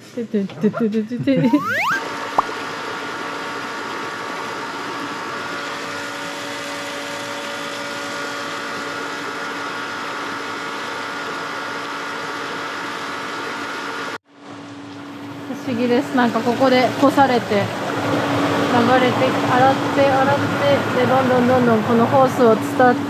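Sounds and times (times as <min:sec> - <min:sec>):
pump humming: 0:14.7 - 0:23.0
water churning and bubbling: 0:16.5 - 0:22.4.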